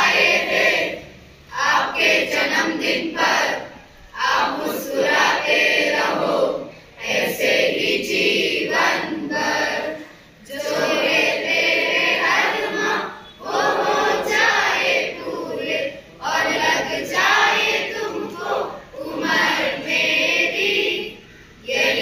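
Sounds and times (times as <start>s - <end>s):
students singing in unison: 0.0s - 22.0s.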